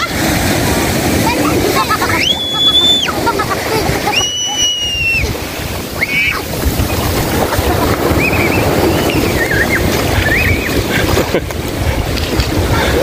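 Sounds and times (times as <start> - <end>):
surf washing over sand: 0.0 - 13.0
wind buffeting microphone: 0.0 - 13.0
children squealing: 1.5 - 10.8.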